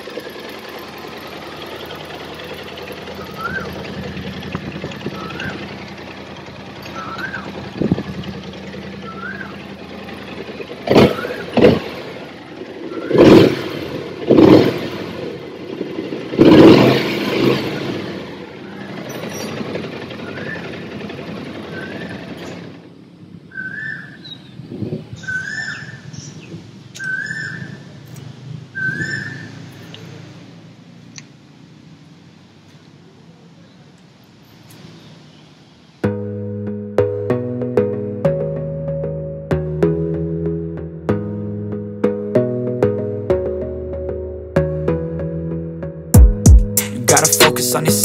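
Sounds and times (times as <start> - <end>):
scooter engine idling and revving: 0.0 - 33.6, 46.1 - 48.0.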